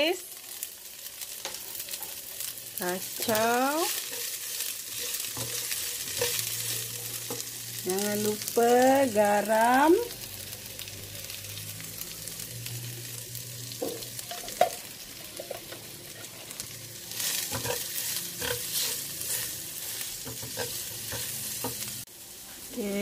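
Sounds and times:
food sizzling in a frying pan: 0:00.0 - 0:23.0
spatula scraping and tapping pan: 0:03.2 - 0:07.5, 0:17.3 - 0:21.9.

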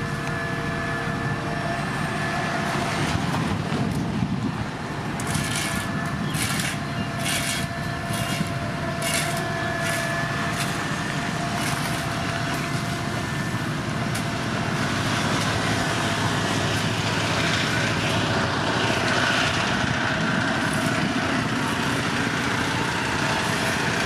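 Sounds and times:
heavy construction machinery running: 0:00.0 - 0:24.0.

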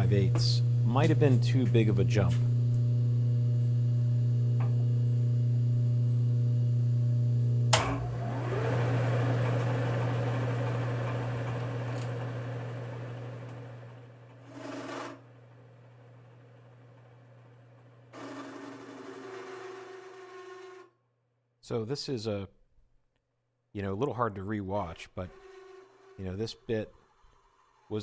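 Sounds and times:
milling machine motor hum: 0:07.7 - 0:20.9, 0:25.3 - 0:28.0
drill whirring: 0:08.0 - 0:20.9.

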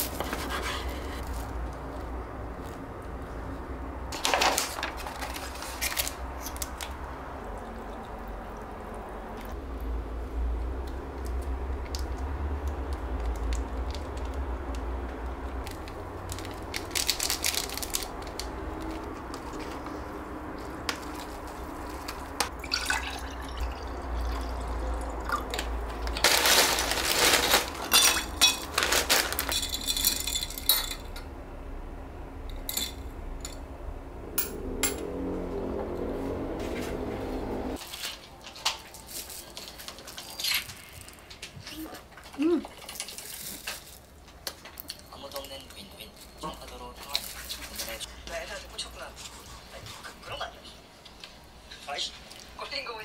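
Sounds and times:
liquid pouring into a glass: 0:22.6 - 0:25.5.

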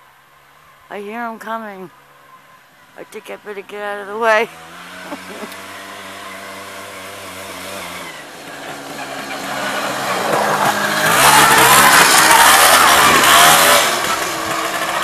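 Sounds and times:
buggy engine running: 0:00.0 - 0:15.0.

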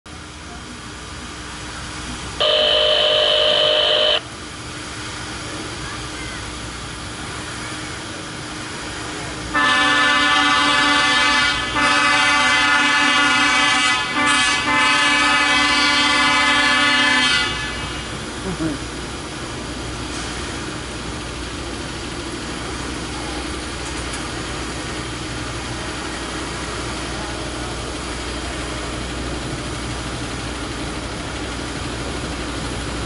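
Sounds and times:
truck horn blasts: 0:02.4 - 0:04.2, 0:09.5 - 0:18.0.

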